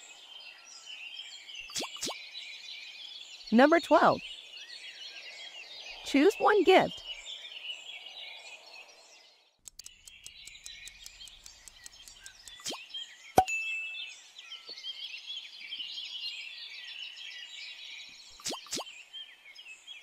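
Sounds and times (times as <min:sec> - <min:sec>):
fast even ticking: 0:09.6 - 0:12.8
faint chirping: 0:09.7 - 0:14.0.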